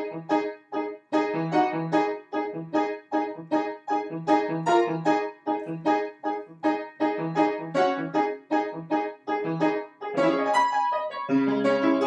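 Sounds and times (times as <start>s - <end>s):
jazz piano chords: 0.0s - 12.0s.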